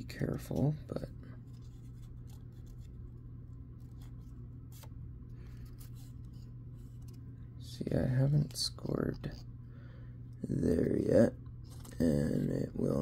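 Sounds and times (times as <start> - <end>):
steady low hum: 0.0 - 13.0
paper strip rustling: 0.2 - 7.3.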